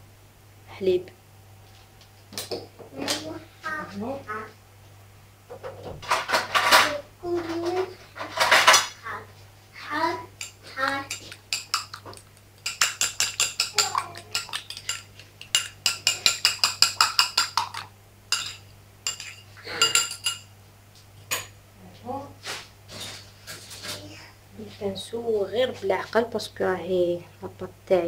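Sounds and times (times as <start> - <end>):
utensil clinking against glass bowl: 10.4 - 12.0, 12.6 - 20.5.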